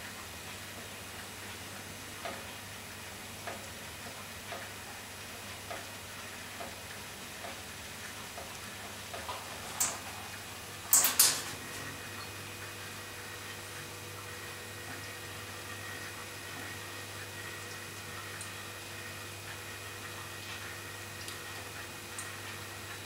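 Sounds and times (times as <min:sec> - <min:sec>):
low steady hum: 0:08.1 - 0:23.0.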